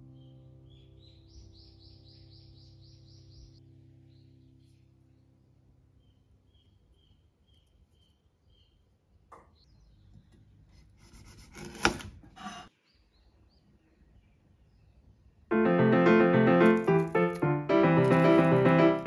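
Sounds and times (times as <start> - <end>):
piano music: 0.0 - 6.0, 15.5 - 19.0
knife cutting garlic skin: 11.0 - 12.7.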